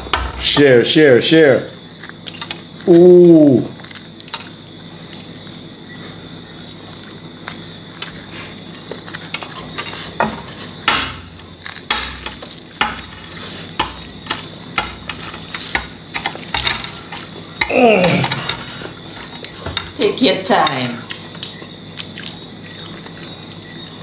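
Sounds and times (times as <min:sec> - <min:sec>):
eggshells cracking: 0:10.8 - 0:19.6.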